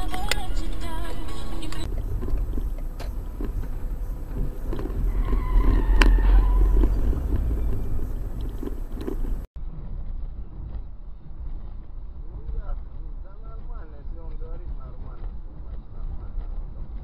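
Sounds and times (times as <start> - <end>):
car engine and road rumble: 0.0 - 17.0.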